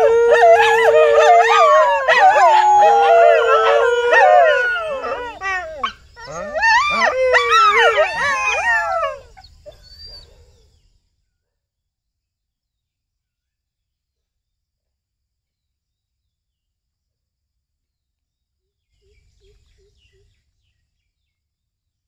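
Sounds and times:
dogs howling and yipping: 0.0 - 10.3.

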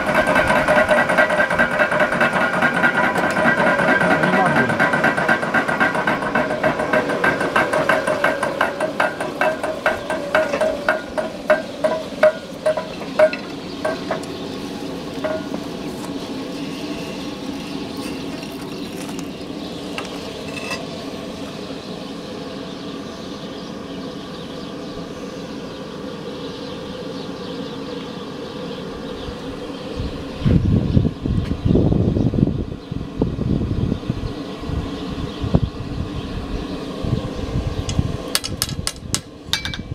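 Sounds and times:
hammer blows on hot steel: 0.0 - 18.9
steady machine hum: 0.0 - 39.9.

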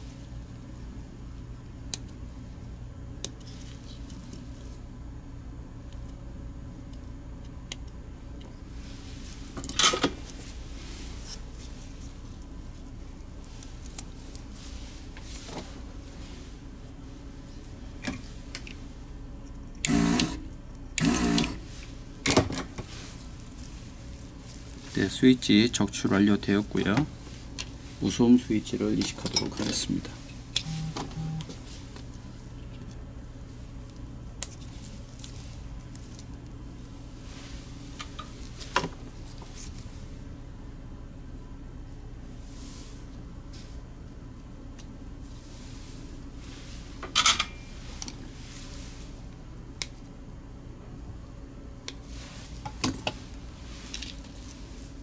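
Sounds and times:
steady low hum: 0.0 - 55.0
low electronic beeps: 30.6 - 31.5.

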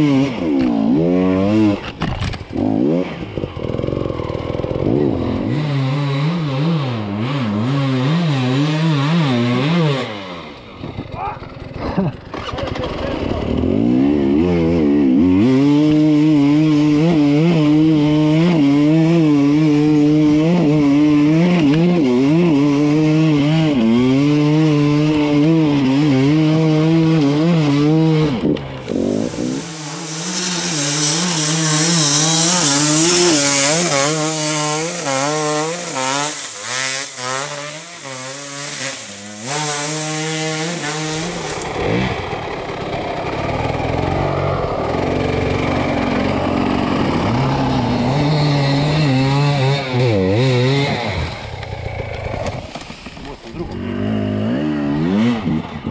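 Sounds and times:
dirt bike engine revving: 0.0 - 55.9
hiss: 29.0 - 33.5.

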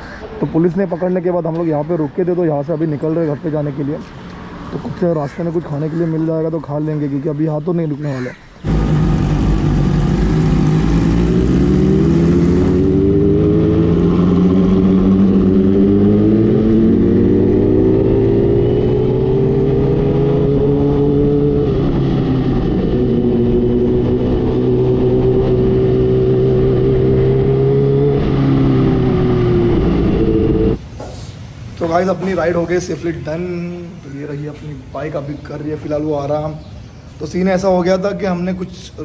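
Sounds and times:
motorcycle engine accelerating: 8.6 - 30.8.

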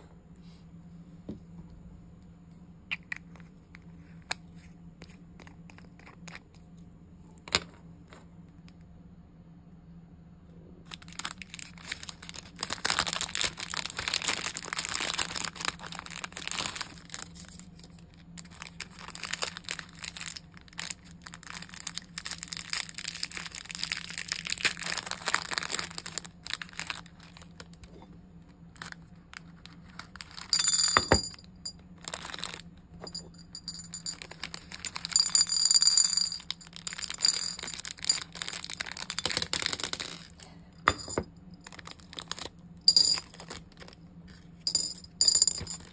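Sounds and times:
plastic beads rattling: 10.9 - 27.8, 28.7 - 44.0, 44.7 - 45.9
plastic bag crinkling: 10.9 - 28.0, 28.6 - 40.4, 41.6 - 44.0.

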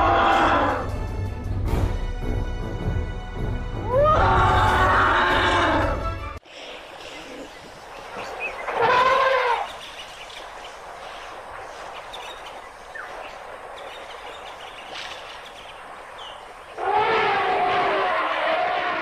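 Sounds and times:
outdoor background noise: 4.0 - 19.0
elephant trumpeting: 8.7 - 9.8, 16.8 - 19.0.

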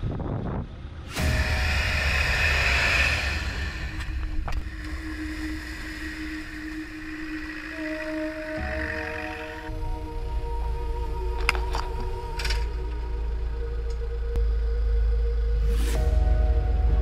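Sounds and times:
off-road vehicle engine under load: 0.0 - 17.0.

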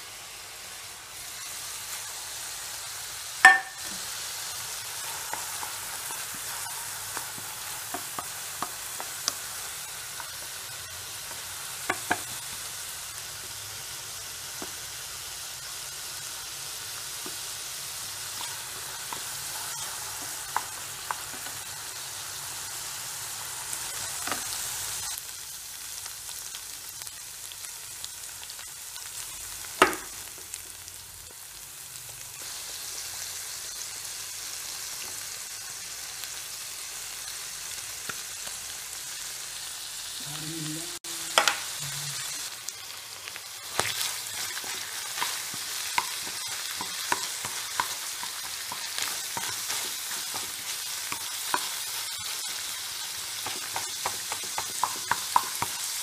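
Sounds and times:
onions sizzling in oil: 0.0 - 56.0
spatula knocking on pan: 3.4 - 4.0.

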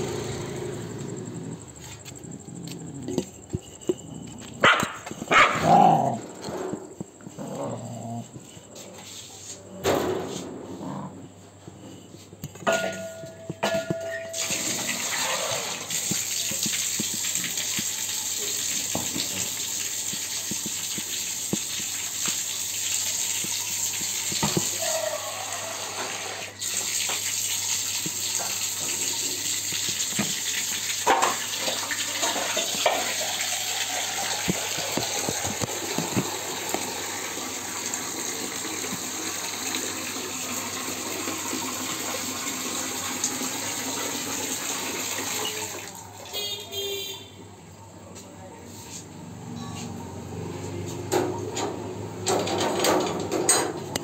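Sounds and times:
running water rushing: 14.3 - 46.0.

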